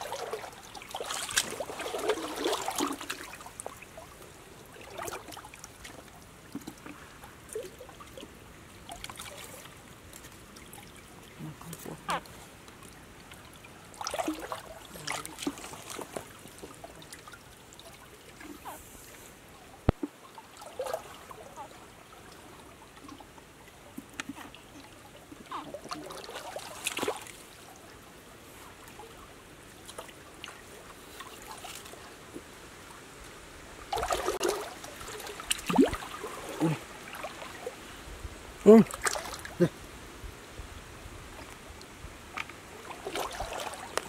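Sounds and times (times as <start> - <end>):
person wading in water: 0.0 - 32.9, 33.8 - 39.9, 41.2 - 44.0
stream water trickling: 0.0 - 44.0.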